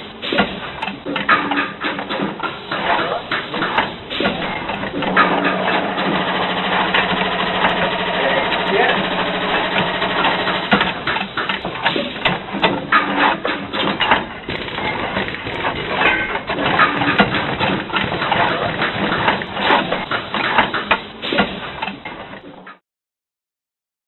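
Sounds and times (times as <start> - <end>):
metal clanks and knocks: 0.2 - 22.4
air spanner whirring: 3.5 - 12.3.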